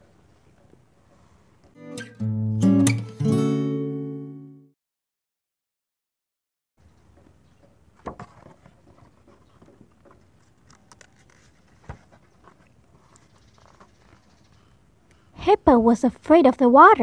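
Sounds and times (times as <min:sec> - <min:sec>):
book pages flipping: 0:08.0 - 0:14.3
paper rustling: 0:08.0 - 0:14.3.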